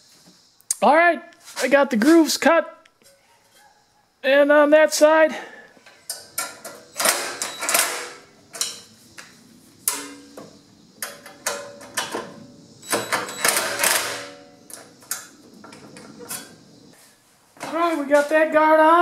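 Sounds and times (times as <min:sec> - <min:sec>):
metal clicks and knocks: 0:05.8 - 0:08.9, 0:09.9 - 0:16.6.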